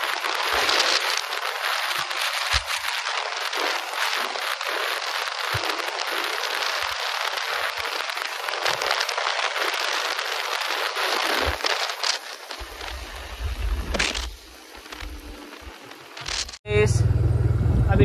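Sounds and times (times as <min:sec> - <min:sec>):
wind rushing over microphone: 0:00.0 - 0:15.8, 0:16.7 - 0:18.0
motorcycle low rumble: 0:12.6 - 0:18.0.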